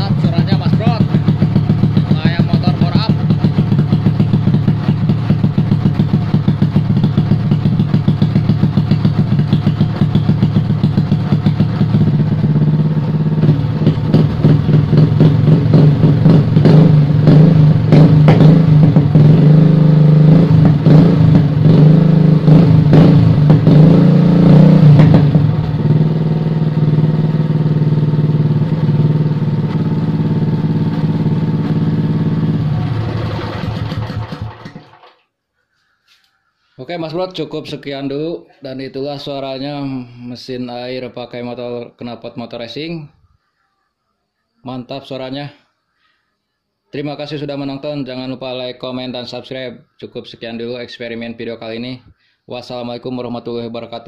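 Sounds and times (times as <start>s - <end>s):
small petrol engine revving: 0.0s - 35.1s.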